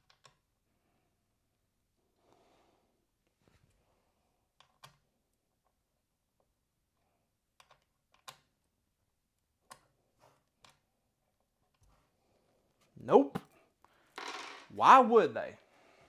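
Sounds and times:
small clicks of metal screws: 7.6s - 8.5s.

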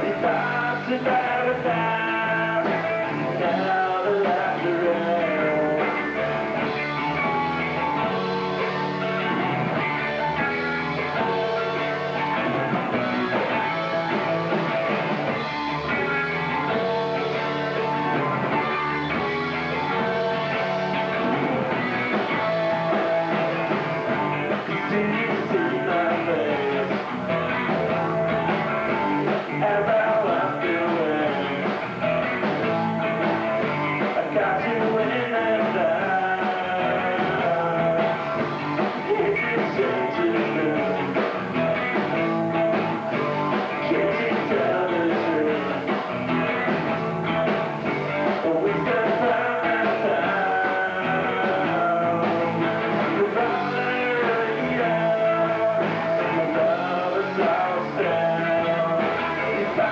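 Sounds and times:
bass guitar: 0.0s - 59.9s
drums: 0.0s - 59.9s
electric guitar: 0.0s - 59.9s.

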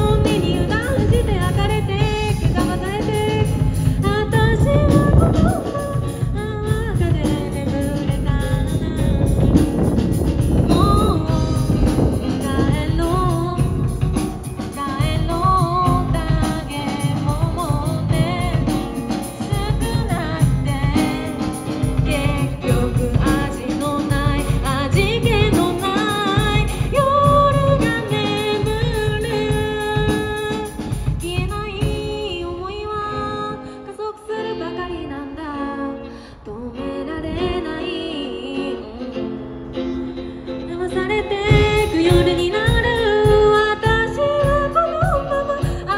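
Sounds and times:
electric bass: 0.0s - 31.8s
drum kit: 0.0s - 32.8s, 40.4s - 45.9s
acoustic guitar: 0.0s - 45.9s
woman singing: 0.0s - 45.9s.

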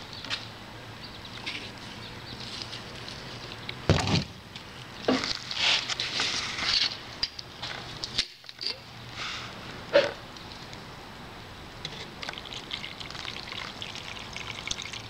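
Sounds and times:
dull thump: 3.9s - 4.4s
scraping and rustling: 5.1s - 7.0s.

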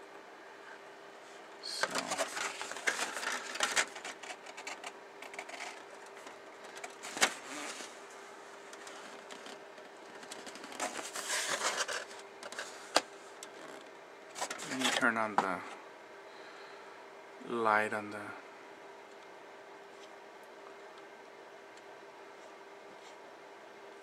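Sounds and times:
plastic parts clicking and rattling: 1.8s - 7.4s.

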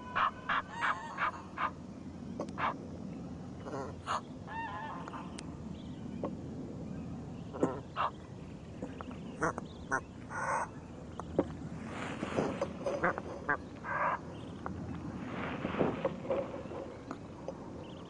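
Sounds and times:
geese calling: 0.0s - 1.8s, 7.5s - 8.2s, 8.9s - 10.7s, 12.4s - 14.3s
low background wash: 0.0s - 18.0s.

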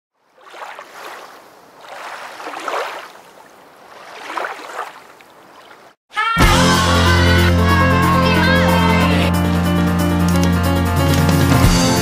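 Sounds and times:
lake water swishing: 0.1s - 6.0s
loud music with steady beat: 6.4s - 12.0s.

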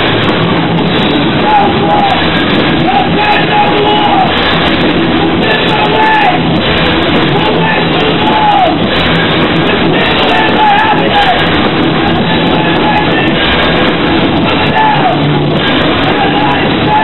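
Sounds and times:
held bending melody line: 0.0s - 17.0s
rock band playing live: 0.0s - 17.0s.

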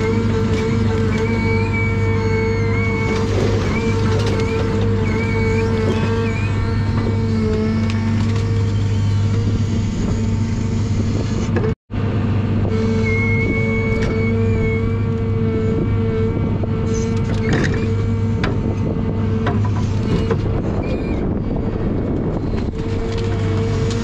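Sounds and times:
diesel engine running: 0.0s - 24.0s
hydraulic crane whine: 0.0s - 24.0s.

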